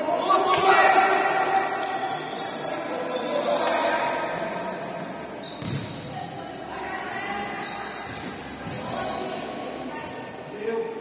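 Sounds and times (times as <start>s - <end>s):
people shouting in sports hall: 0.0s - 5.0s.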